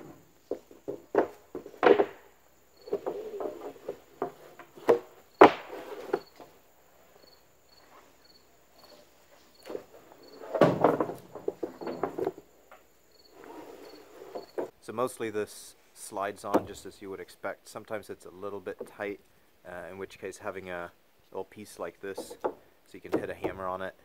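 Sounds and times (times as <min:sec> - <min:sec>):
wooden boards knocking: 0:00.0 - 0:06.5, 0:09.6 - 0:12.8, 0:16.5 - 0:16.8, 0:22.1 - 0:23.8
wood sliding on wood: 0:00.0 - 0:14.7, 0:22.0 - 0:23.8
cricket chirping: 0:00.0 - 0:14.8.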